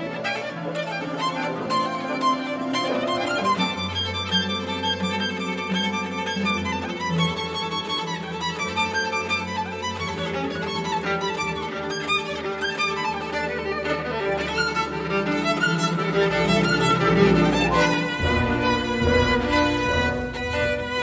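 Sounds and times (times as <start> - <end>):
harp arpeggios: 0.0 - 21.0
solo violin: 0.0 - 21.0
strings repeated figures: 14.4 - 21.0.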